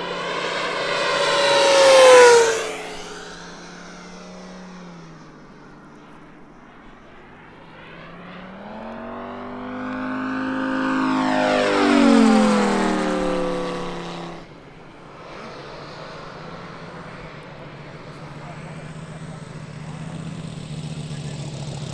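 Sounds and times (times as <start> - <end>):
model plane engine flying past: 0.0 - 21.9.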